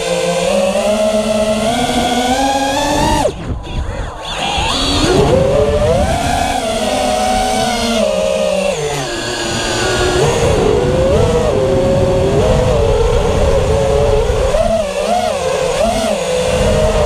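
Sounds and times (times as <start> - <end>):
drone motors whining: 0.0 - 17.0
rumble of prop wash and wind: 9.5 - 15.0.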